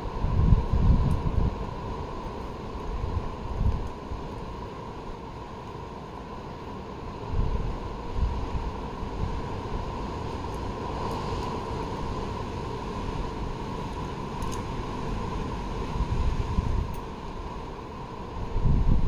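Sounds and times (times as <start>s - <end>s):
wind buffeting microphone: 0.0s - 2.2s, 7.2s - 17.0s, 18.3s - 19.0s.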